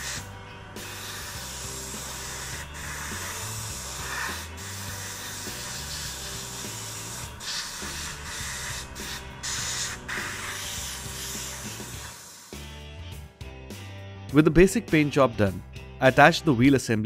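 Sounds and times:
airbrush spraying hiss: 0:00.0 - 0:12.8
background music: 0:00.0 - 0:17.0.

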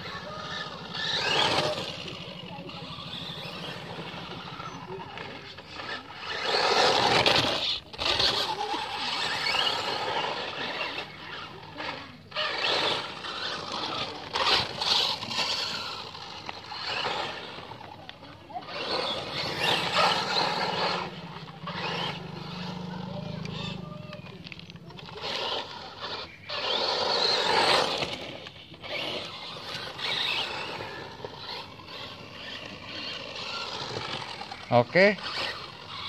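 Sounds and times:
toy truck motor whir: 0:00.0 - 0:36.0
tyres scrabbling on gravel: 0:12.4 - 0:36.0.

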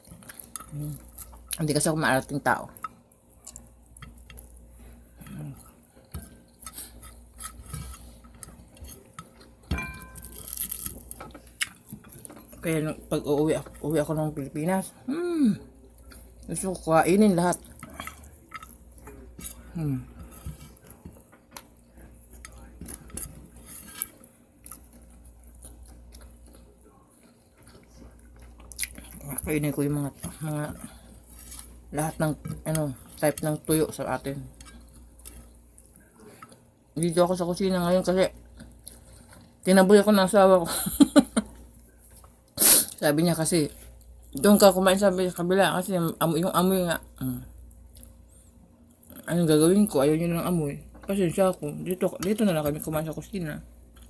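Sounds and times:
person chewing: 0:00.0 - 0:01.6, 0:02.8 - 0:12.6, 0:17.6 - 0:29.4
crockery clinking: 0:09.0 - 0:11.2.

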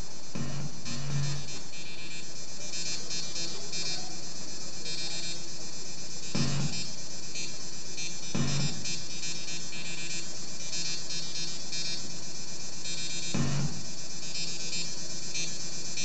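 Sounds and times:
low electronic pulse: 0:00.0 - 0:02.2, 0:06.2 - 0:12.0, 0:12.8 - 0:14.9
high buzzing electronic tones: 0:00.0 - 0:04.2, 0:06.2 - 0:16.0.

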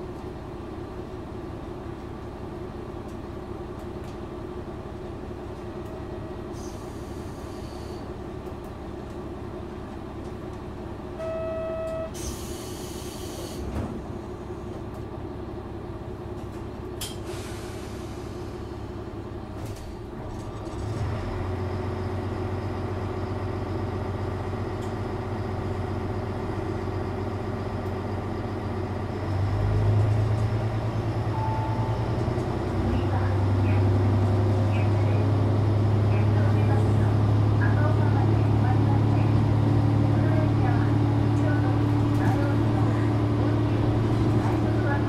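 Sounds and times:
diesel railcar engine idling: 0:00.0 - 0:45.0
short beep: 0:11.2 - 0:12.3, 0:31.3 - 0:32.2.

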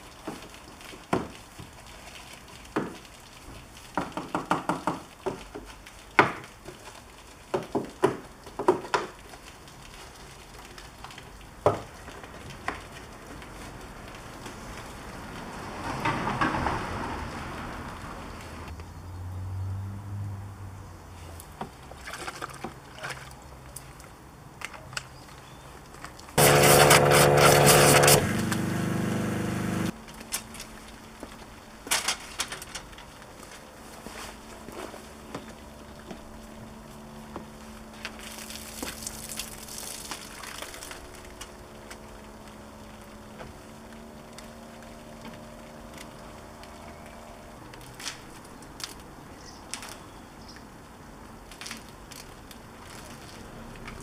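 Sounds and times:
pressure washer motor humming: 0:26.4 - 0:29.9
pressure washer spray hissing: 0:26.4 - 0:29.9.

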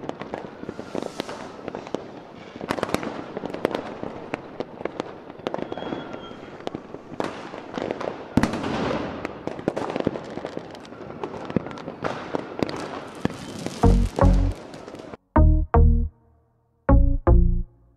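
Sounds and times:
fireworks bangs and crackling: 0:00.0 - 0:15.2
deep electronic music thuds: 0:13.8 - 0:14.6, 0:15.4 - 0:16.2, 0:16.9 - 0:17.8.

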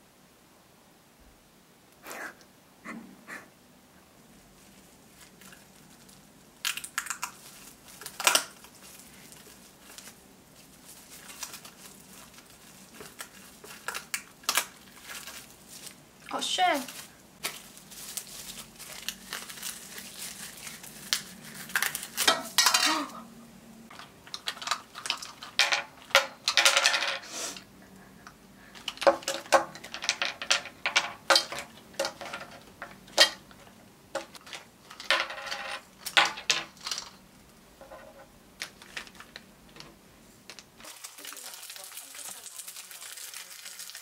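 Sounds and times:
plastic crinkling: 0:04.4 - 0:23.2, 0:23.9 - 0:26.7, 0:28.6 - 0:35.2, 0:38.6 - 0:44.0
wafers clattering on tabletop: 0:24.5 - 0:27.3, 0:28.9 - 0:33.4.

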